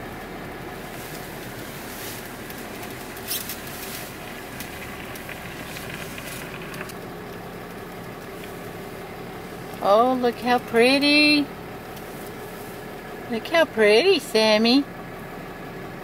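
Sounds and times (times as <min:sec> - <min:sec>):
pickup truck rolling slowly: 0:00.0 - 0:16.0
short rustle: 0:00.8 - 0:06.6, 0:11.9 - 0:13.0.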